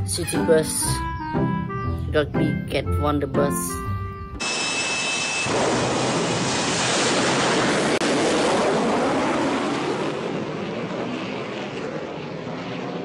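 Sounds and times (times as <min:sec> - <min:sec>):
jet engine roaring: 0:04.4 - 0:13.0.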